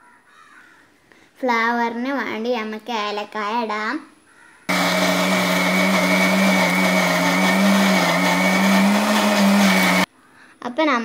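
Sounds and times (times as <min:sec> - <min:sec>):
mixer grinder whining: 0:04.7 - 0:10.1.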